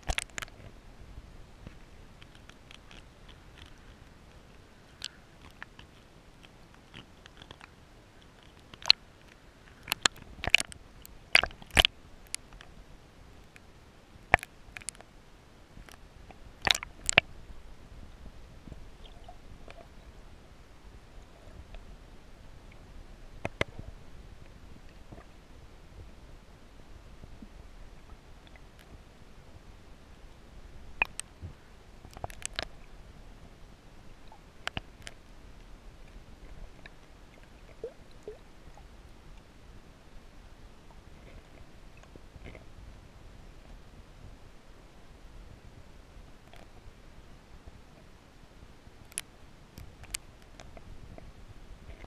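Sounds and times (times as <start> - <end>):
sharp underwater clicks: 0.0 - 0.7, 1.6 - 12.8, 13.4 - 15.1, 15.8 - 17.3, 31.0 - 31.4, 32.0 - 32.9, 34.2 - 35.3, 49.0 - 51.3
underwater rumble of moving water: 0.0 - 52.0.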